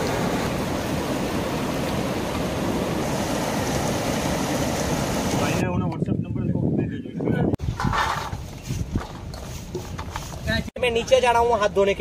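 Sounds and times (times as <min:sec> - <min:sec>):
flowing water rushing: 0:00.0 - 0:05.6.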